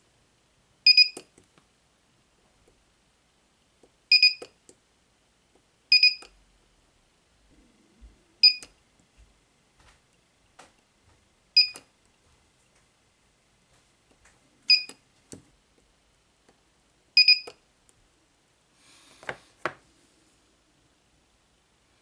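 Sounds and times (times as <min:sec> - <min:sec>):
spot welder beeps and snaps: 0:00.9 - 0:01.3, 0:04.1 - 0:04.6, 0:06.0 - 0:06.3, 0:08.4 - 0:08.7, 0:11.6 - 0:11.9, 0:14.7 - 0:15.0, 0:17.2 - 0:17.6.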